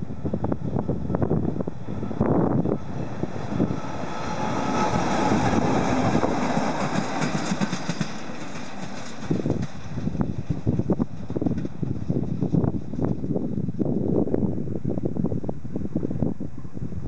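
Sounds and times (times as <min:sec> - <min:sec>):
wheels clicking over rail joints: 0:04.8 - 0:13.4.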